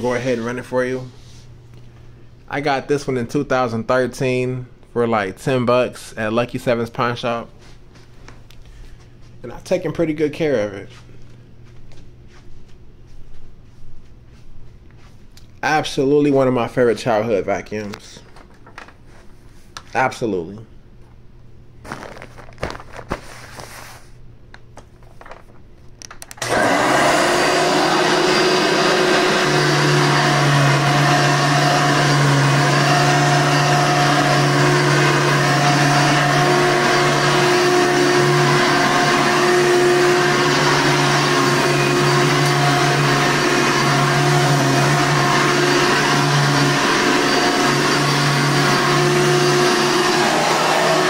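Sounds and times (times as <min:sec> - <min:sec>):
vacuum cleaner running: 0:00.0 - 0:02.8, 0:26.4 - 0:51.0.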